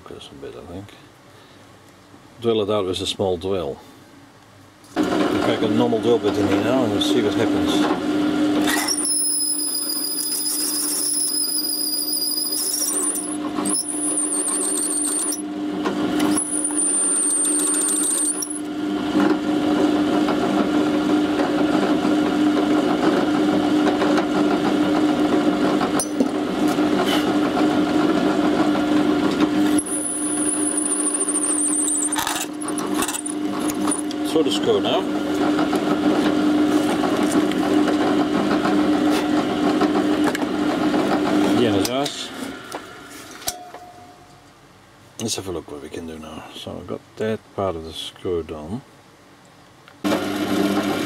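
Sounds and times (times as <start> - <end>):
drill bit squealing on brass: 8.7 - 15.5, 16.2 - 18.7, 29.7 - 34.1
electric drill motor hum: 8.7 - 15.5, 16.1 - 18.7, 29.7 - 34.2.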